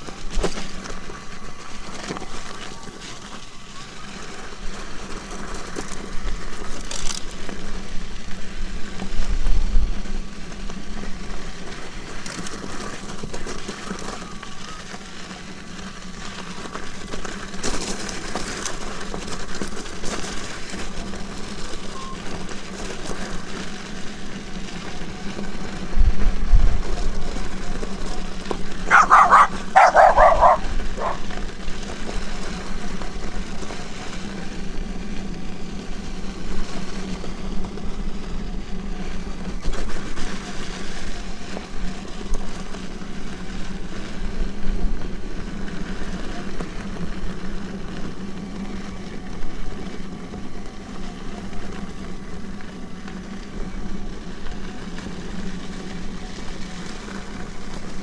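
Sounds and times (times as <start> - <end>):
electric unicycles humming: 0.0 - 58.0
tyres on gravel trail: 0.0 - 58.0
wind: 0.0 - 58.0
dog barking: 28.9 - 31.3.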